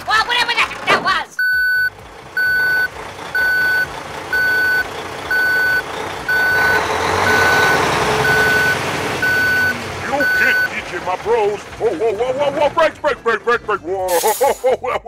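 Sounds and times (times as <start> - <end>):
truck engine rumble: 0.0 - 15.0
truck reversing beeper: 1.4 - 11.8.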